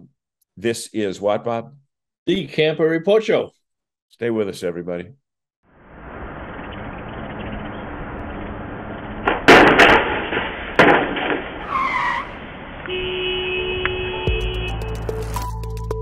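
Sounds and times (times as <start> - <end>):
traffic noise: 5.7 - 15.4
loud crash: 9.2 - 12.5.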